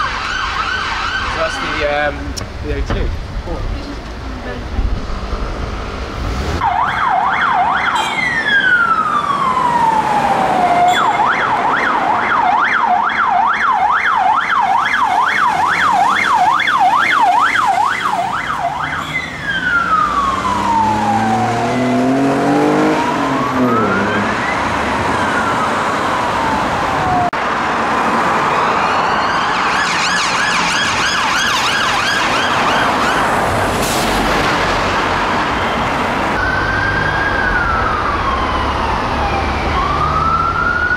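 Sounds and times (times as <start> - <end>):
warbling siren: 0.0 - 1.8, 6.6 - 27.4, 28.5 - 33.6, 35.4 - 40.9
police siren yelp and wail: 0.0 - 2.0, 6.6 - 27.4, 28.0 - 33.8, 35.2 - 40.9
engine revving: 19.6 - 25.6.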